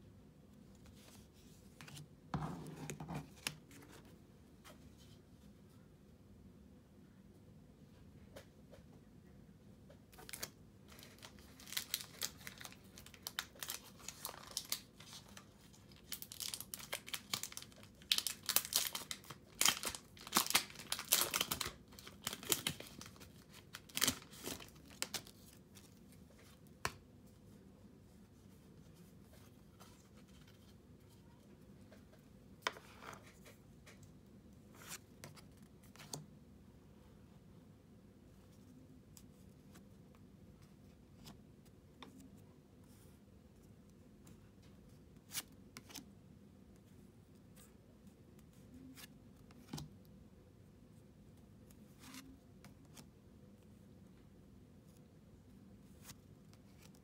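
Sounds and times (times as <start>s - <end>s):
foil wrapper crinkling: 10.3s - 25.3s.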